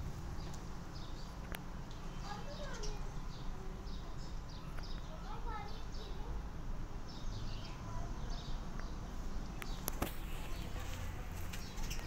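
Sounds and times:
outdoor background noise: 0.0s - 12.0s
faint high chirping calls: 2.0s - 6.3s, 7.1s - 12.0s.

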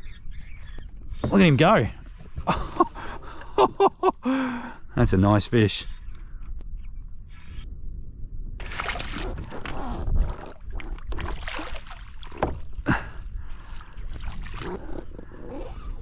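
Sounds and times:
water sloshing: 8.6s - 12.8s.

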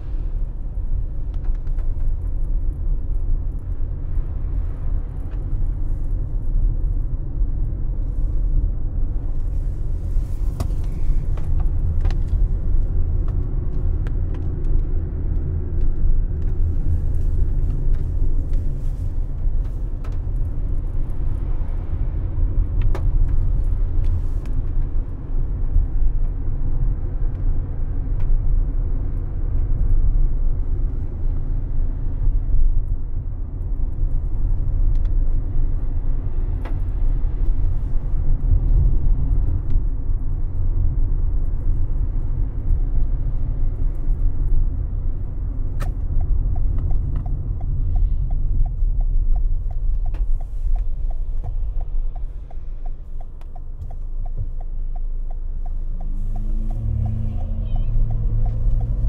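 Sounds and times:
car tyres and engine rumbling: 0.0s - 59.0s
turn indicator ticking: 45.5s - 59.0s.

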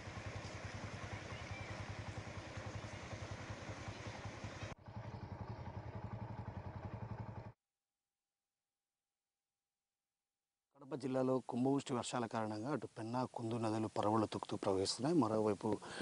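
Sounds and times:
engine running with fast pulse: 0.0s - 7.6s.

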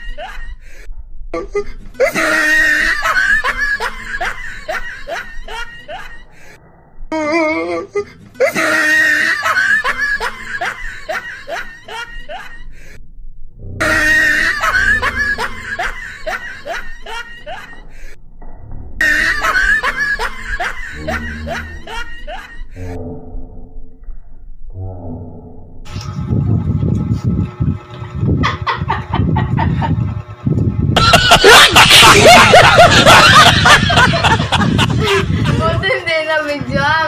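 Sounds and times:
loud laughter: 1.6s - 6.3s, 8.4s - 12.7s, 13.8s - 18.0s, 19.0s - 22.7s, 28.4s - 30.1s, 31.0s - 35.9s.

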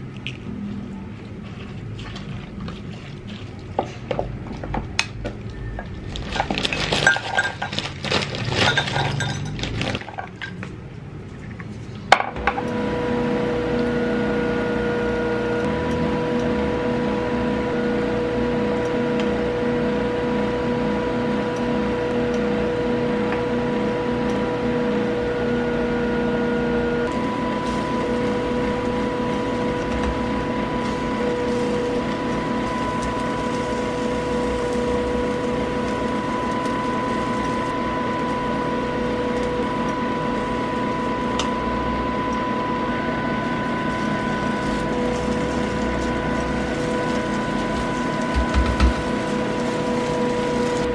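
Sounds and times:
mechanical hum: 0.0s - 50.9s.

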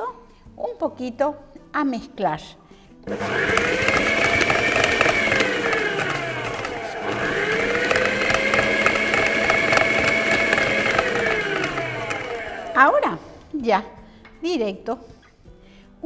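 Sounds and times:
stand mixer motor whine: 3.1s - 13.0s.

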